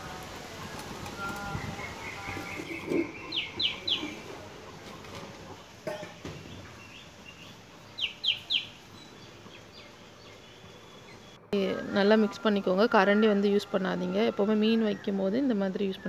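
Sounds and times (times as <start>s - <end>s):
bird chirping: 1.2s - 4.4s, 6.2s - 11.4s.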